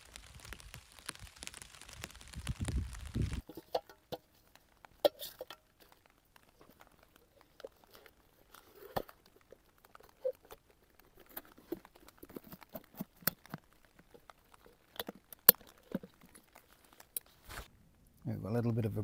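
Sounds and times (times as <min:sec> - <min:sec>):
cook pot parts clicking and scraping: 0:03.4 - 0:17.7.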